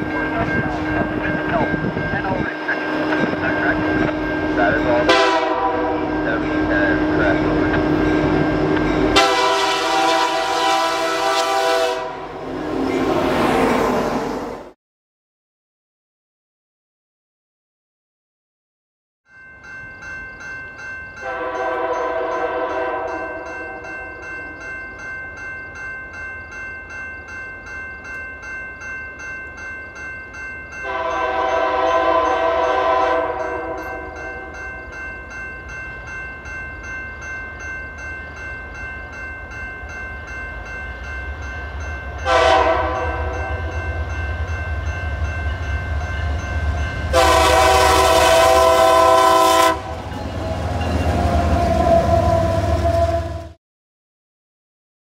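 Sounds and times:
bell ringing: 0.0 - 9.5, 19.3 - 47.9
train rumble: 0.0 - 14.8, 30.7 - 53.6
locomotive air horn blasts: 5.0 - 6.2, 9.1 - 12.4, 21.2 - 23.8, 30.8 - 34.5, 42.2 - 43.7, 47.1 - 50.1, 51.5 - 53.6.

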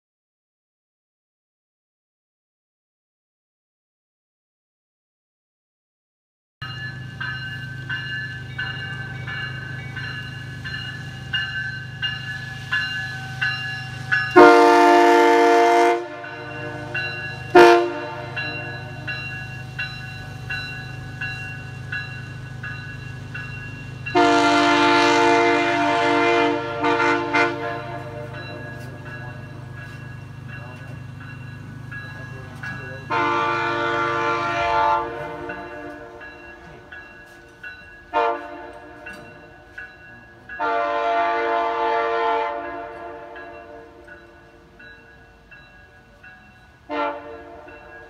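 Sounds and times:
locomotive air horn chord: 14.3 - 19.1, 24.1 - 28.4, 33.1 - 36.2, 38.1 - 39.0, 40.6 - 44.0, 46.9 - 47.7.

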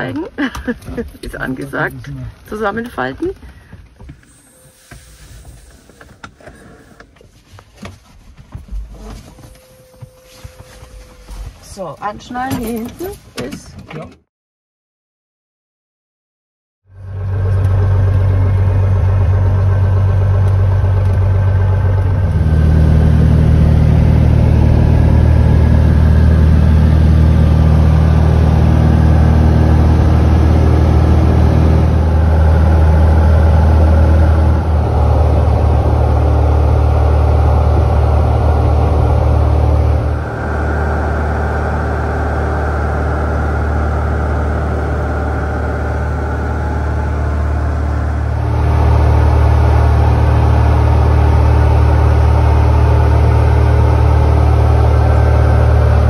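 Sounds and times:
light aircraft engine and propeller: 17.0 - 56.0.

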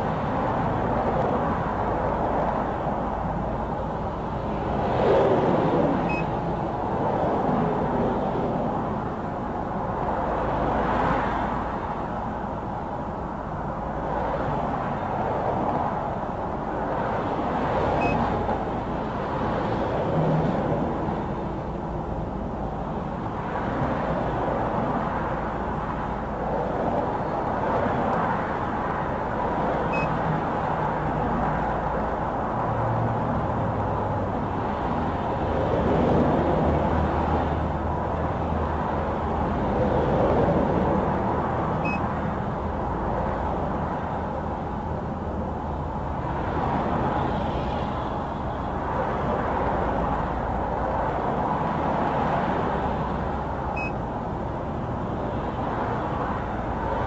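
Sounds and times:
passing vehicles: 0.0 - 57.0
faint short beep: 6.1 - 6.3, 18.0 - 18.2, 29.9 - 30.1, 41.8 - 42.1, 53.8 - 54.0.

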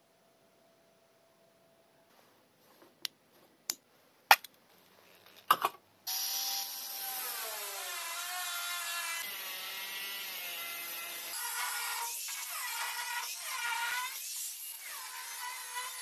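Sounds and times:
angle grinder cutting steel: 6.1 - 16.0.

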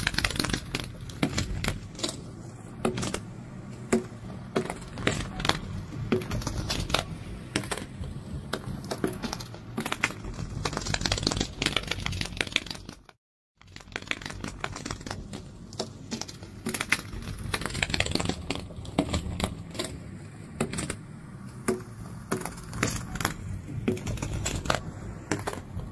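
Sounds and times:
wings fluttering with dry clicks: 9.1 - 20.0.

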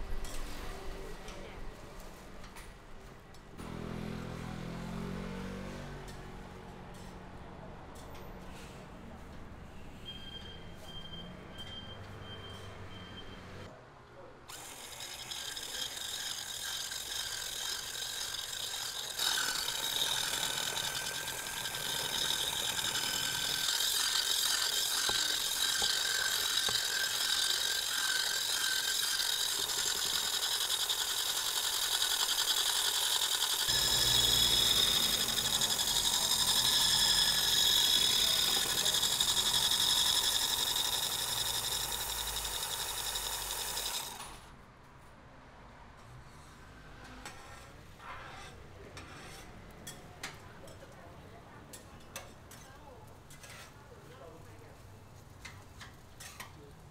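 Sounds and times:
electric whisk mixer whining: 14.5 - 44.4.

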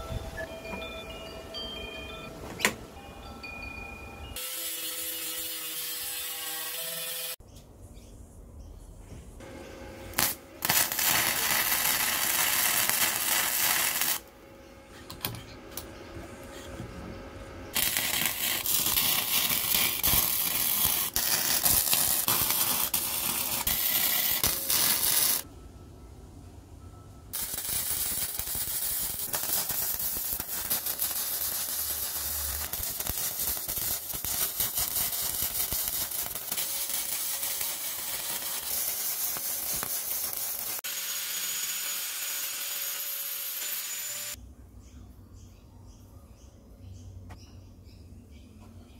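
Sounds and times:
arc welding crackling and hissing: 4.4 - 7.4, 10.1 - 14.3, 17.7 - 25.5, 27.4 - 44.4.

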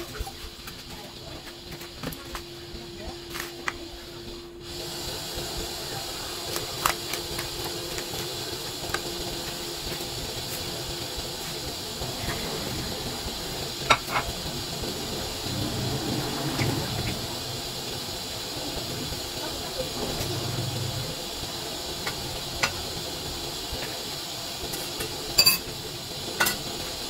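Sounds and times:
steady hiss of heating pot: 0.0 - 27.0
broth bubbling: 4.6 - 24.7.

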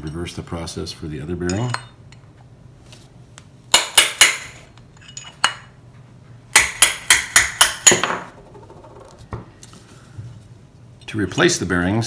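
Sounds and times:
hammer striking metal punch: 3.7 - 4.6, 6.5 - 8.3.

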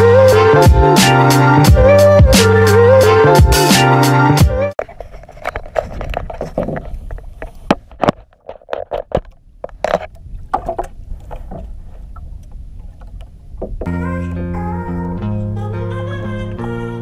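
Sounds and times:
rumble of water and wind: 4.8 - 14.2.

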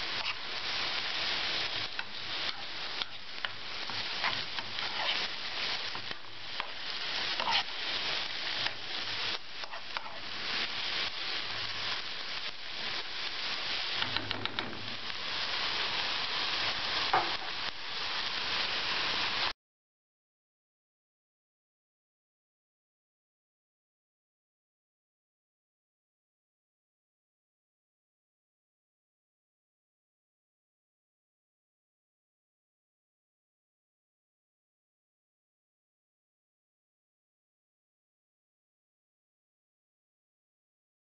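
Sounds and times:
onions sizzling in oil: 0.0 - 19.6
metal spoon stirring: 7.4 - 7.7.

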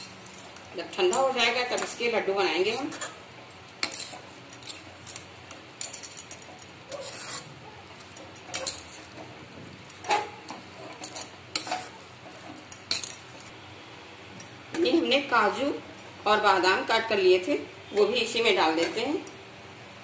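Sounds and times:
metal spatula scraping a pan: 0.0 - 3.2, 3.8 - 5.2, 6.9 - 9.4, 10.0 - 13.1.

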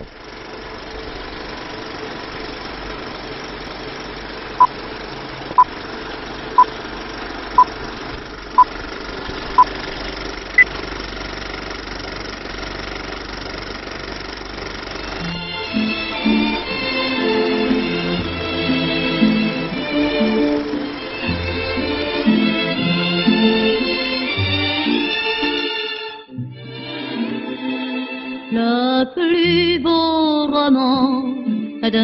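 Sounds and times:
film projector whirr: 0.0 - 23.8.

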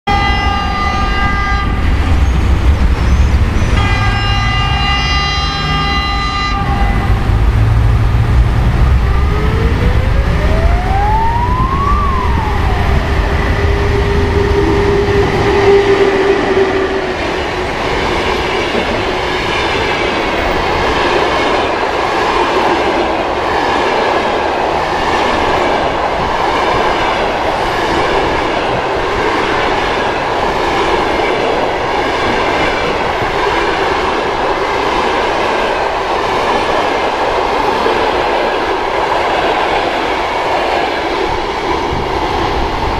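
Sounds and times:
train horn blasts: 0.1 - 2.1, 3.7 - 7.7, 13.5 - 17.2
electric locomotive whine: 0.1 - 42.9.

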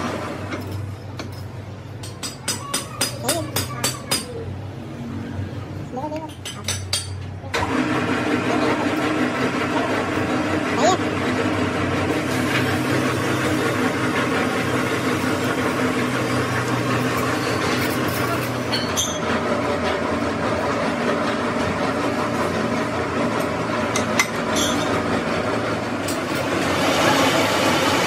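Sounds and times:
metal lathe running: 6.4 - 28.0.

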